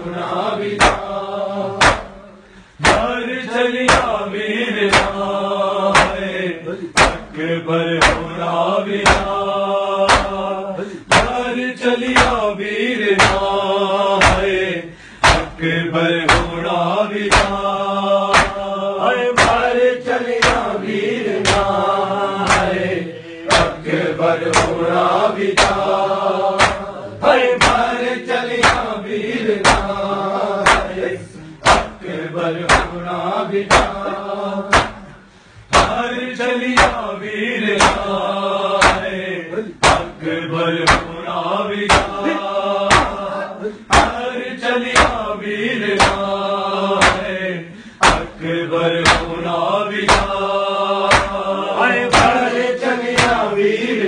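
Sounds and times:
men chanting in unison: 0.0s - 54.0s
hands slapping chests: 0.6s - 1.2s, 1.8s - 3.1s, 3.9s - 4.2s, 4.8s - 5.2s, 5.9s - 6.4s, 7.0s - 7.4s, 8.0s - 8.4s, 9.0s - 9.4s, 10.1s - 10.5s, 11.1s - 11.5s, 12.1s - 12.5s, 13.2s - 13.6s, 14.2s - 14.6s, 15.2s - 15.6s, 16.3s - 21.8s, 22.4s - 22.9s, 23.5s - 27.0s, 27.6s - 30.0s, 30.6s - 32.0s, 32.6s - 33.0s, 33.6s - 36.0s, 36.8s - 37.1s, 37.7s - 38.2s, 38.8s - 39.2s, 39.8s - 40.2s, 40.8s - 41.2s, 41.8s - 42.3s, 42.9s - 43.3s, 43.9s - 44.2s, 45.0s - 45.2s, 45.8s - 46.3s, 47.0s - 47.3s, 48.0s - 48.3s, 49.0s - 49.4s, 50.0s - 50.4s, 51.0s - 51.4s, 52.1s - 52.5s, 53.1s - 53.5s.

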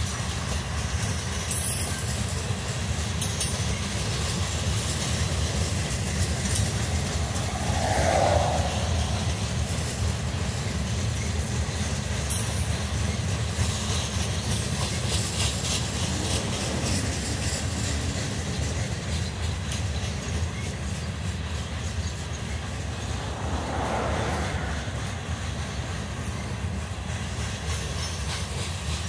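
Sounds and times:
train wheel clicks: 0.0s - 6.9s, 11.1s - 22.4s, 26.2s - 29.0s
freight train wheels rumbling: 0.0s - 29.0s.

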